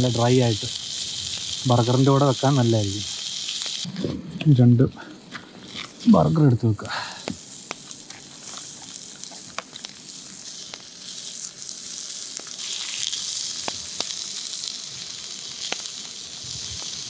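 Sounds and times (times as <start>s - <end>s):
patties sizzling in frying pan: 0.0s - 3.9s, 6.0s - 17.0s
fat popping: 6.8s - 10.9s.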